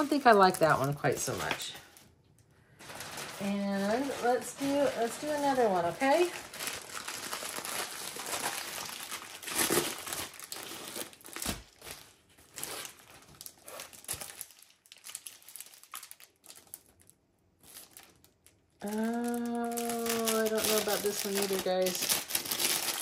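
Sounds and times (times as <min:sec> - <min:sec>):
plastic packaging crinkling: 0:00.0 - 0:23.0.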